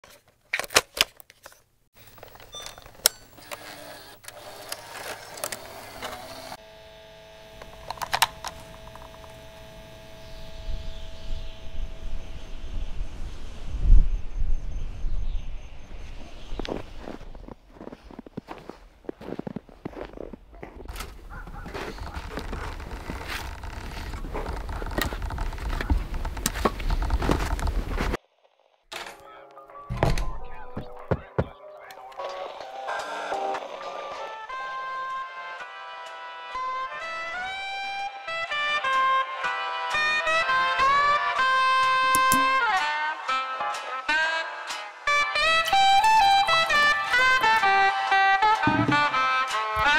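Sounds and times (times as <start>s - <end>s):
electrical hum: 2.0s - 28.2s
clicks and crackle: 7.6s - 9.4s, 20.6s - 28.2s
wood scraping against coat: 20.9s - 28.2s.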